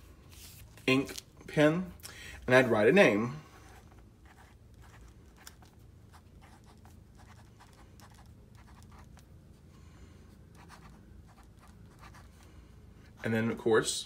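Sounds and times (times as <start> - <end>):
pen scratching on paper: 3.6 - 9.2, 10.5 - 12.4.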